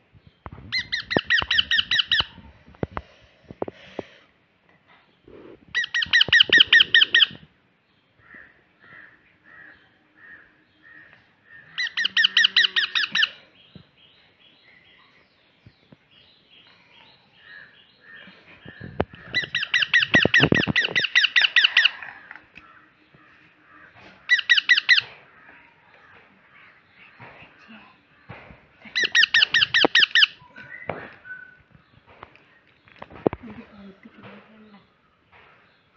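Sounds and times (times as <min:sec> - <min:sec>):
baby parrot squawking: 0:05.8 - 0:07.4, 0:29.0 - 0:30.4.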